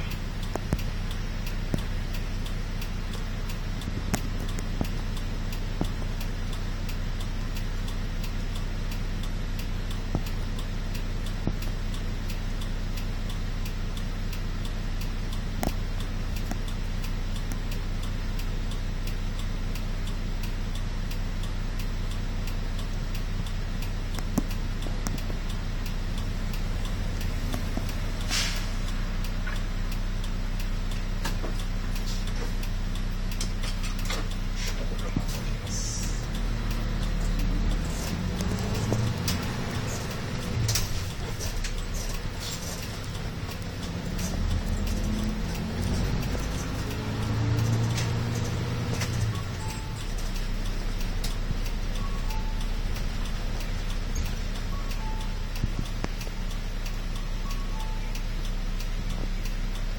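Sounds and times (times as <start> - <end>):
diesel engine idling: 0.0 - 59.9
brief hiss: 28.3 - 28.8.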